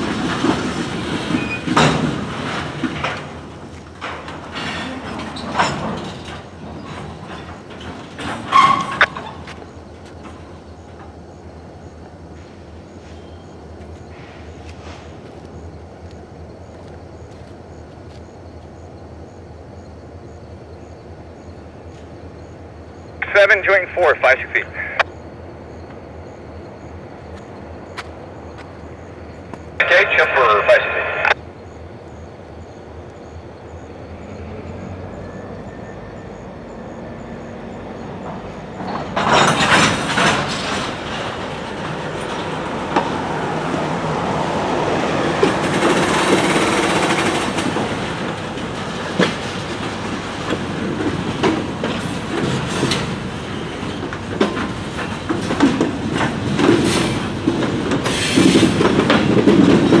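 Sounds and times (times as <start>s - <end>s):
freight train wheels clanking on rails: 0.0s - 19.5s, 35.1s - 60.0s.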